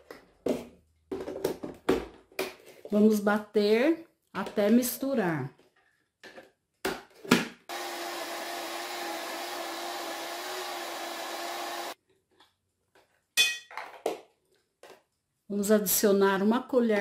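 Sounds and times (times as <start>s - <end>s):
blender running: 7.7s - 12.0s.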